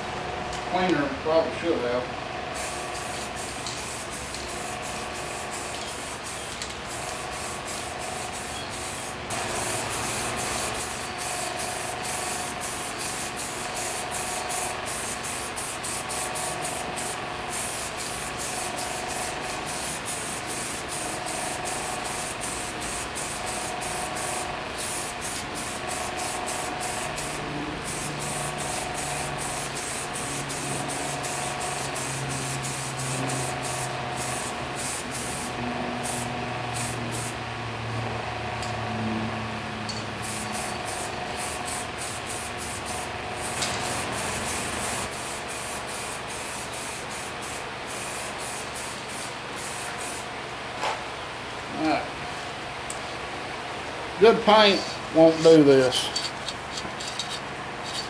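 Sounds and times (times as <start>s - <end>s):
aerosol spray can hissing: 2.6s - 37.4s, 40.2s - 50.3s.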